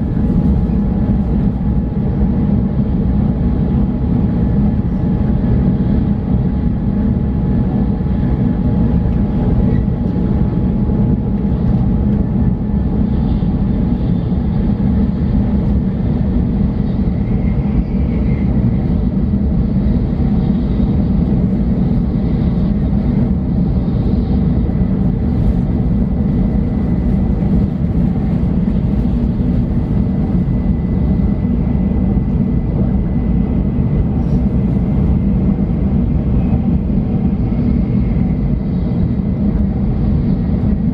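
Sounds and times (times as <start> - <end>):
train rumble inside cabin: 0.0 - 40.9.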